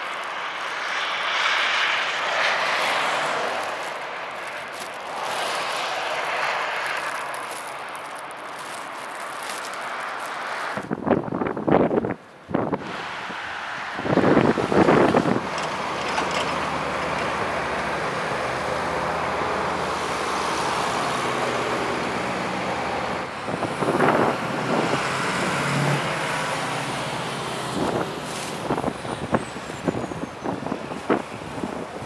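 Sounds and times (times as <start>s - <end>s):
road and plow noise: 0.0s - 32.0s
wind buffeting microphone: 10.3s - 32.0s
dump truck engines driving past: 12.0s - 32.0s.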